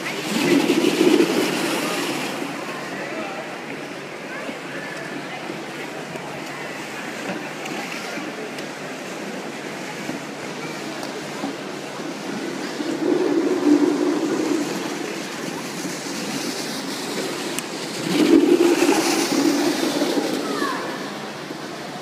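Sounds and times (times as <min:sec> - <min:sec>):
skates scraping over ice: 0:00.0 - 0:02.8, 0:11.4 - 0:21.2.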